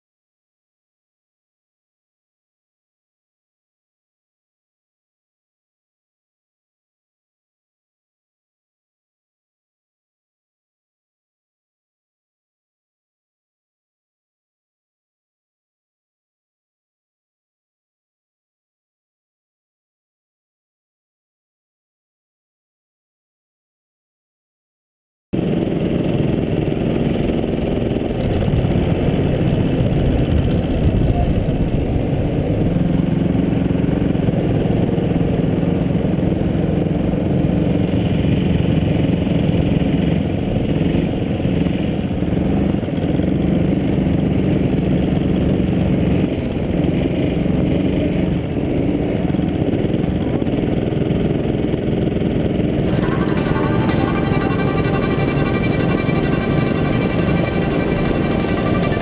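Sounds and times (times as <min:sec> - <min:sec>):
go-kart engine running: 0:25.4 - 0:59.0
other karts running nearby: 0:25.4 - 0:59.0.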